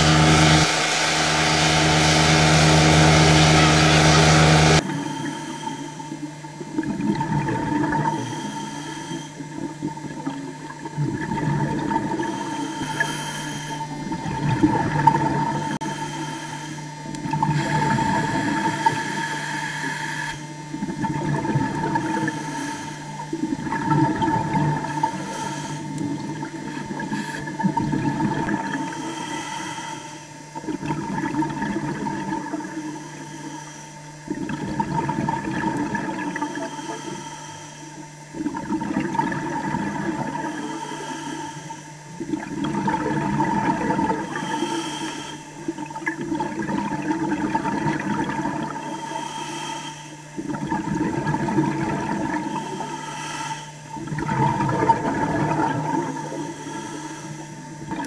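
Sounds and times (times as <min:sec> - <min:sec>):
steady hum: 0:00.0 - 0:58.0
underwater bubbling rushing water: 0:04.5 - 0:08.3, 0:09.4 - 0:13.2, 0:13.8 - 0:15.8, 0:16.9 - 0:19.0, 0:20.6 - 0:29.0, 0:30.5 - 0:33.2, 0:34.1 - 0:36.7, 0:38.0 - 0:40.7, 0:41.9 - 0:44.5, 0:45.6 - 0:49.0, 0:50.2 - 0:53.0, 0:53.7 - 0:56.6, 0:57.5 - 0:58.0.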